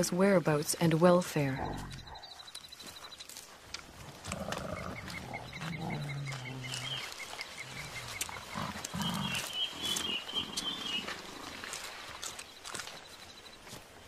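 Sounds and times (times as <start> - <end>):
rustling movement through grass: 1.8 - 14.0
gorilla low hum: 4.0 - 11.6
gorillas grunting: 4.0 - 11.6.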